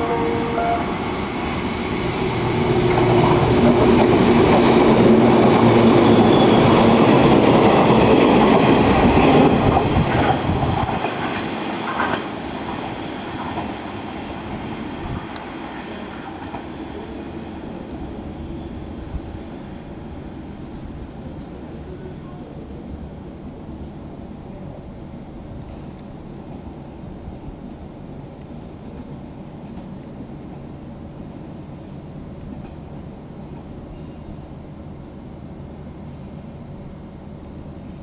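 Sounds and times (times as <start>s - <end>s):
train wheels rumbling and clacking: 1.0s - 18.3s.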